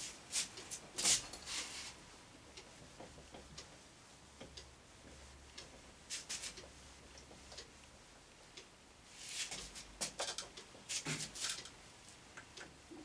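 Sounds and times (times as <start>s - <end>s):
cloth wiping a whiteboard: 0.0s - 2.0s, 6.1s - 6.6s, 9.1s - 9.9s, 10.9s - 11.4s.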